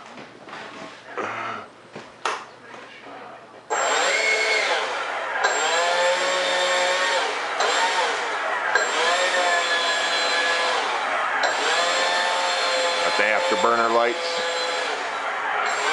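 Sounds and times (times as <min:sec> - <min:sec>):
electric ducted fan whining: 0:03.7 - 0:15.9.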